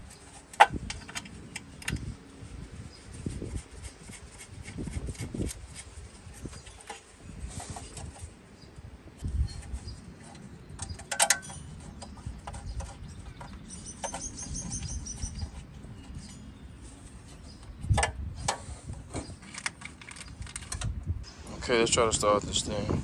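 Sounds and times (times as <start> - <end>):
low wind rumble: 0.0 - 23.0
bird chirping rapidly: 9.4 - 18.0.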